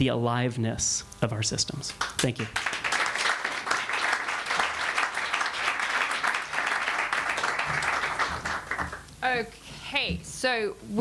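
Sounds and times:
audience applauding: 2.0 - 9.0.

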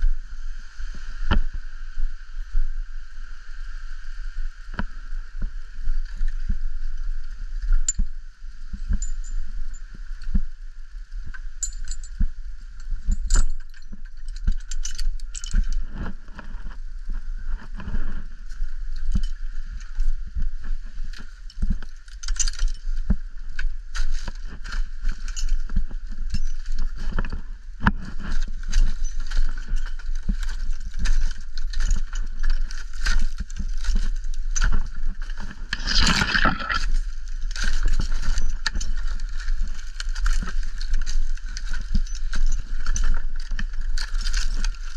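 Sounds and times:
wind on microphone: 0.0 - 44.9
climbing gear jangling: 13.0 - 16.1, 21.5 - 22.9, 24.0 - 27.4, 28.2 - 44.9
rope scraping on tree trunk: 35.2 - 38.2.

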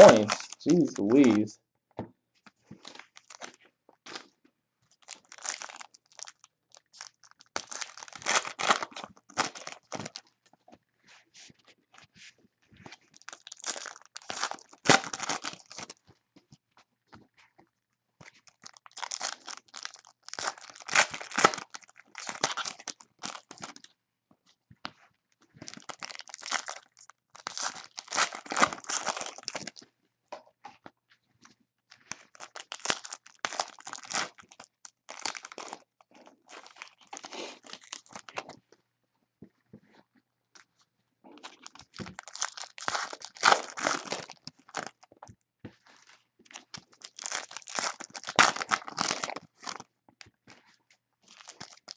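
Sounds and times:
card pack wrappers tearing and crinkling: 0.0 - 1.5, 5.0 - 10.2, 13.1 - 16.0, 18.4 - 23.8, 25.7 - 29.8, 32.1 - 38.5, 41.4 - 45.0, 46.6 - 49.8, 51.3 - 51.9.

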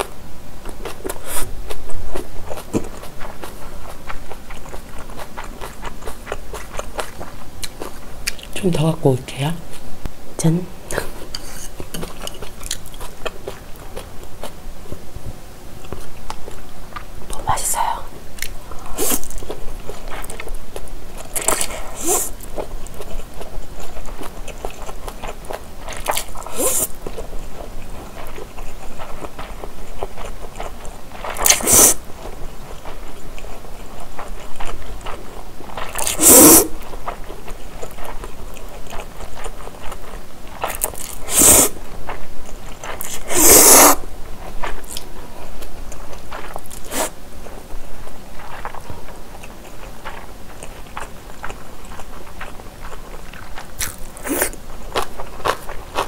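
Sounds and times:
chewing noodles: 0.0 - 8.6, 10.9 - 15.0, 17.8 - 56.0
noodle slurps: 26.4 - 27.0, 31.3 - 32.0, 35.9 - 36.8, 41.1 - 41.8, 43.0 - 44.0.

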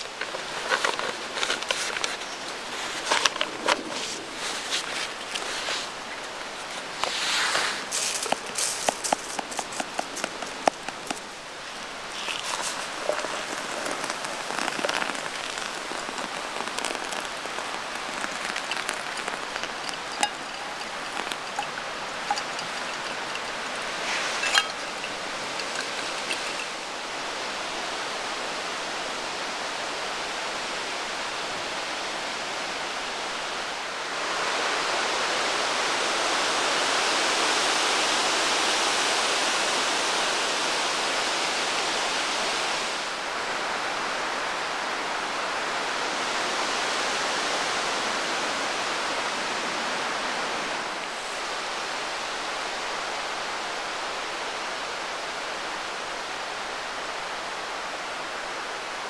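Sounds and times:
hot water pouring and splashing: 0.0 - 28.4
steady rushing hiss: 0.0 - 59.0.

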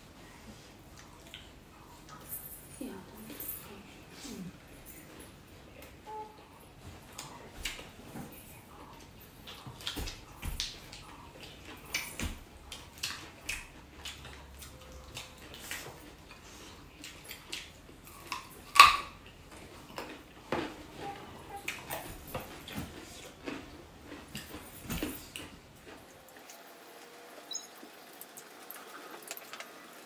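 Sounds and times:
chewing and lip-smacking: 0.9 - 2.3, 8.7 - 26.6.

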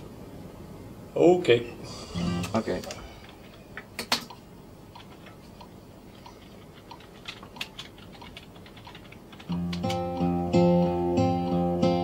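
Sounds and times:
keyboard typing clicks: 2.8 - 10.2
acoustic guitar music: 9.5 - 12.0.

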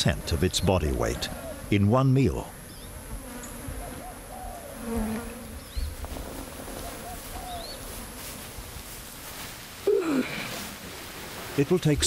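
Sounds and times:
flies buzzing: 0.0 - 12.0.

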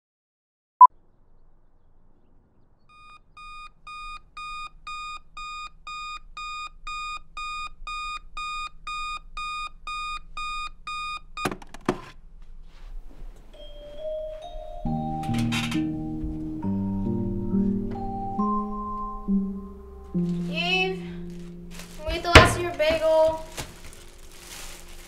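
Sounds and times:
alarm clock beeping: 2.9 - 11.5
loud knocks: 22.1 - 23.1.

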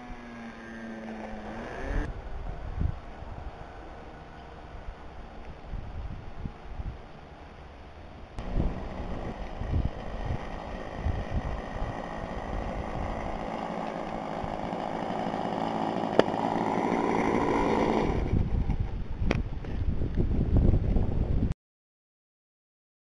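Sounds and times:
model airplane engine running: 0.0 - 2.1, 8.4 - 19.2
wind buffeting microphone: 1.9 - 3.6, 5.5 - 7.1, 8.4 - 15.1, 16.0 - 21.5.

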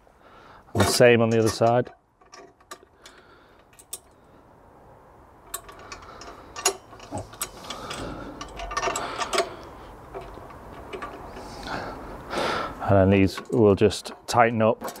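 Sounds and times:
metal parts clicking and knocking: 0.8 - 4.2, 5.4 - 11.6, 13.2 - 15.0.

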